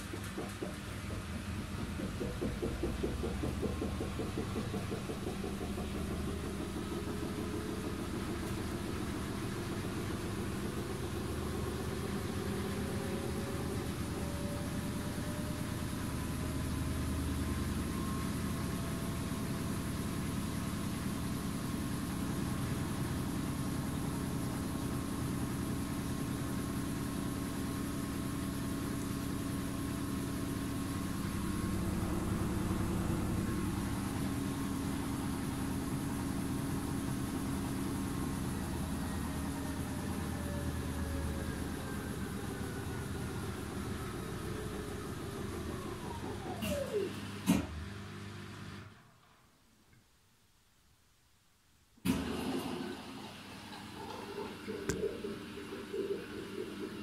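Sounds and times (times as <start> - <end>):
washing machine humming: 0.0 - 49.2, 52.0 - 57.0
thin motor whine: 29.4 - 49.0.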